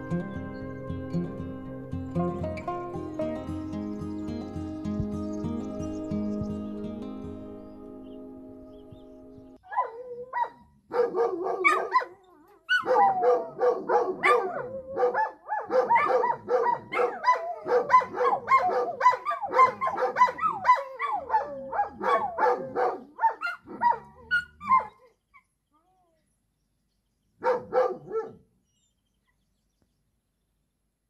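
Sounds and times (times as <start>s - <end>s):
dog barking and howling: 9.5s - 25.1s, 27.4s - 28.4s.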